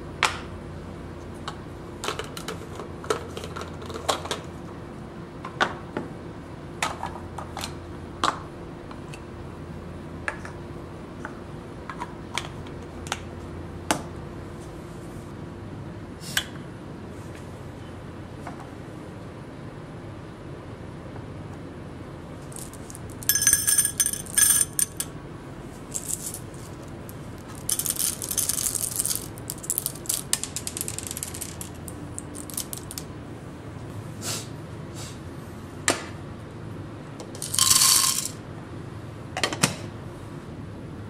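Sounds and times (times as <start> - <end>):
coffee beans clattering into metal cup: 22.5 - 25.1, 25.9 - 33.0, 37.4 - 38.4.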